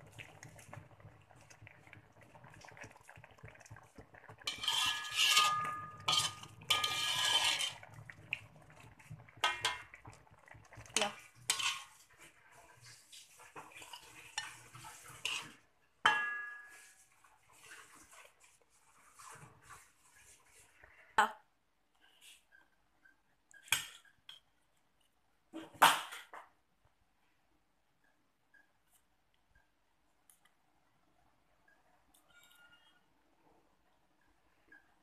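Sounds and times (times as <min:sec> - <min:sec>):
utensils scraping a wok: 0:04.4 - 0:08.0, 0:11.0 - 0:15.6.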